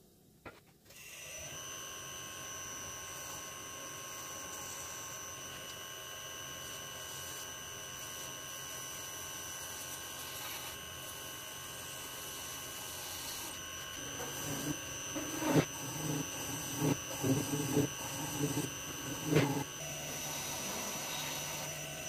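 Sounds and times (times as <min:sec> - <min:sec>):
lathe high-pitched whine: 0:01.0 - 0:22.0
cutter scraping metal: 0:12.7 - 0:22.0.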